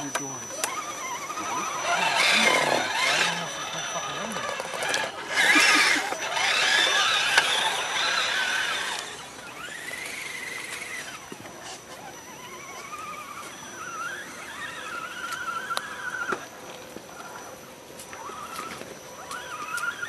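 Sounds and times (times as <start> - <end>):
electric motor whine: 0.0 - 20.0.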